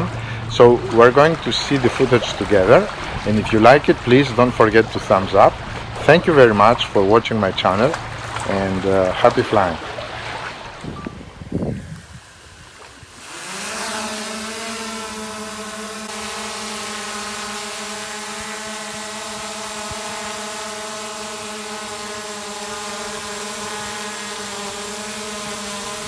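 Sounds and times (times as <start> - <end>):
drone propeller buzz: 10.1 - 26.0.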